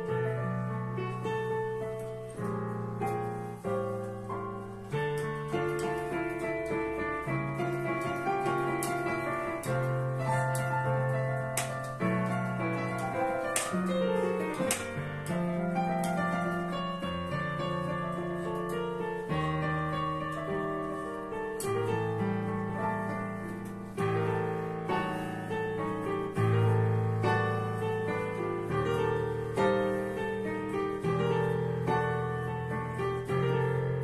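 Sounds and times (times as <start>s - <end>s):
digital piano playing: 0.0s - 34.0s.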